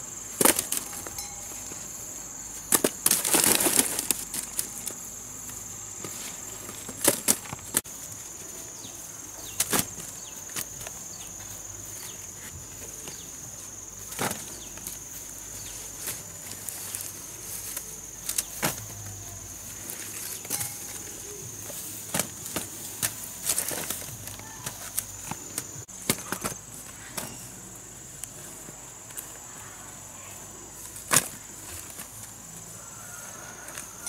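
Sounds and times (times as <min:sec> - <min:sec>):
high-pitched insect drone: 0:10.2 - 0:25.9.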